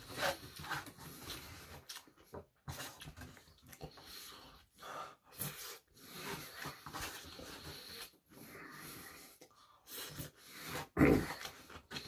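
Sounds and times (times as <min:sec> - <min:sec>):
breathing through nose: 0:03.8 - 0:12.0.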